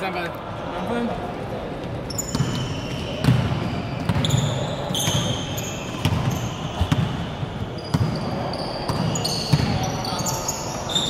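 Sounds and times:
sneakers squeaking on hardwood: 2.1 - 11.0
basketball bouncing: 2.3 - 5.4, 6.0 - 9.8.

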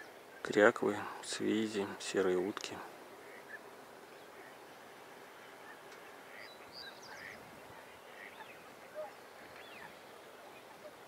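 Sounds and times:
distant swans calling: 0.0 - 11.0
ducks calling: 3.1 - 11.0.

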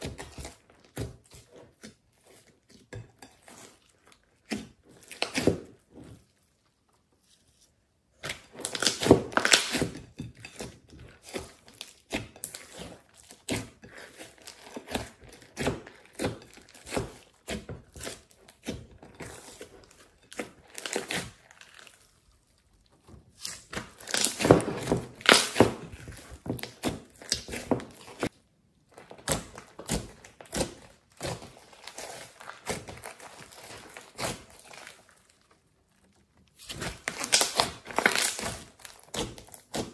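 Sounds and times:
slime squishing and crackling: 8.1 - 39.9.

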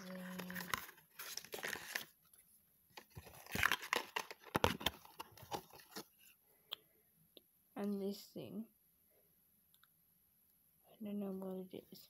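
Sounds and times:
packaging rustling and crinkling: 0.0 - 6.2.

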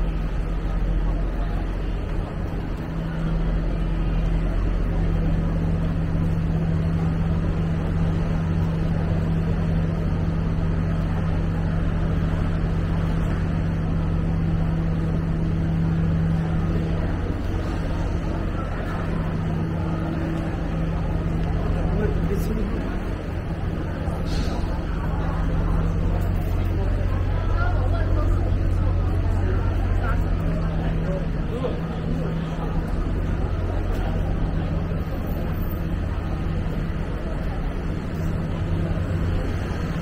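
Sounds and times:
motor traffic hum: 0.0 - 40.0.

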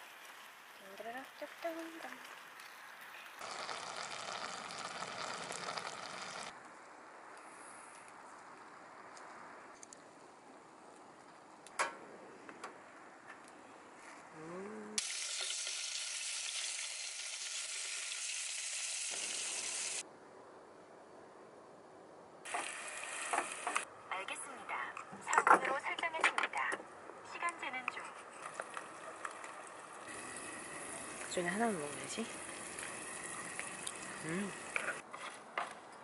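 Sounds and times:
food sizzling in a frying pan: 0.0 - 6.5, 15.0 - 20.0, 22.5 - 23.8, 30.1 - 35.0.

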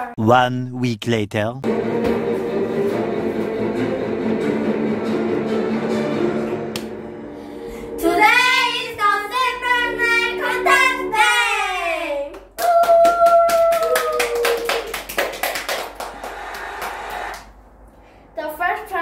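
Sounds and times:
backing music: 1.6 - 12.4
rapid hand clapping: 12.3 - 17.5.

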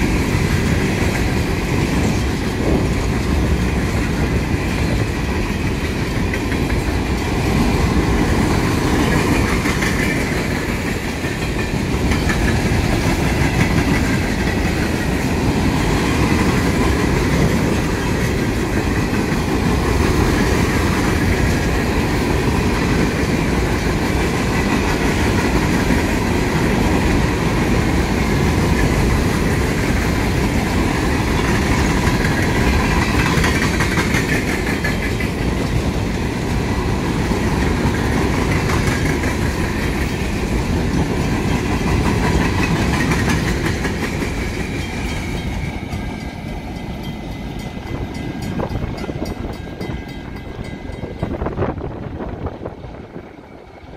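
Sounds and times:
freight train rumbling past: 0.0 - 53.9
rapid clicking of wheels: 31.6 - 35.8.

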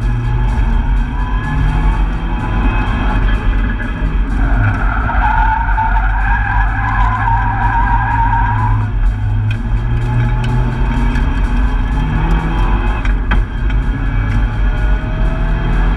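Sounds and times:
car engine running hard: 0.0 - 15.9
tyres squealing: 3.6 - 9.0.

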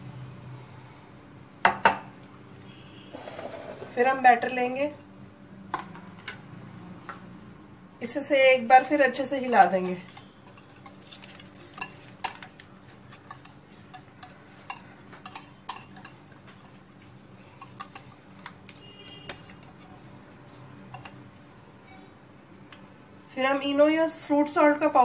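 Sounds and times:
whisk clinking against glass bowl: 11.7 - 18.5.

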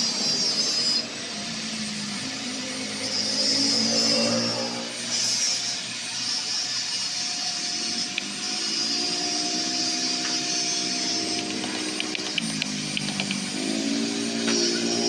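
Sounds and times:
machine whirring hum: 0.0 - 15.0
wrench clicking on metal: 10.2 - 13.5.

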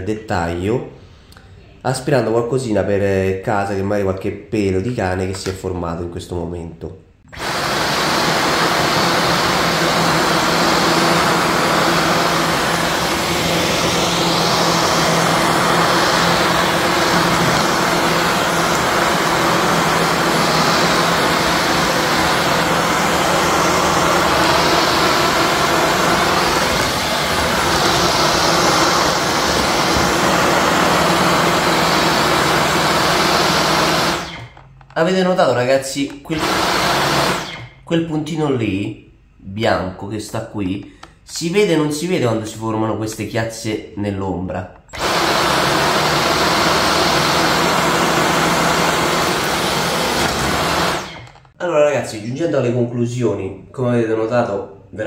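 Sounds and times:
vacuum cleaner running: 7.3 - 34.7, 36.1 - 37.8, 44.8 - 51.6.

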